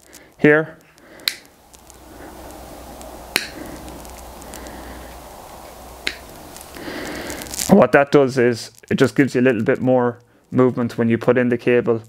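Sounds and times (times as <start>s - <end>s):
steady background hum: 0.0s - 9.6s.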